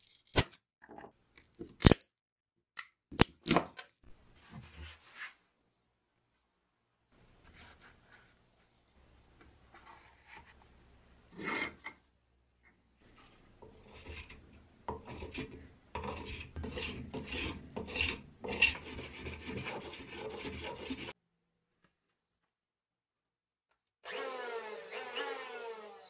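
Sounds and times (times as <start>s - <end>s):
rasp scraping wood: 13.6s - 21.1s.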